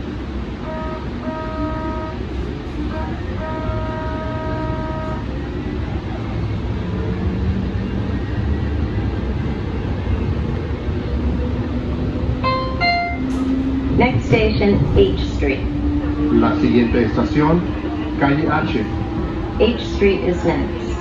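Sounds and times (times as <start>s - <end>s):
train rolling rumble: 0.0s - 21.0s
next-stop announcement: 0.5s - 5.9s, 12.4s - 21.0s
train horn: 0.6s - 5.4s.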